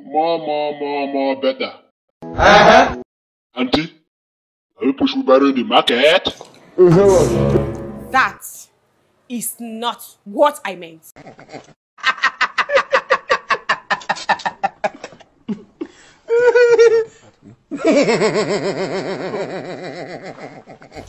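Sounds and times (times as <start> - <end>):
hearty laughter: 2.4 - 3.0, 11.2 - 21.0.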